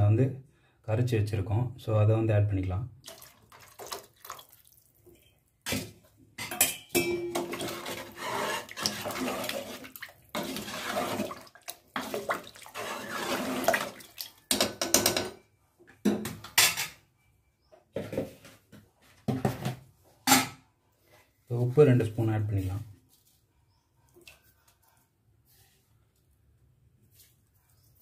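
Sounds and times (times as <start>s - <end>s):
liquid sloshing: 3.0s - 5.2s, 7.3s - 14.5s
metal ladle scraping a pot: 7.1s - 14.0s.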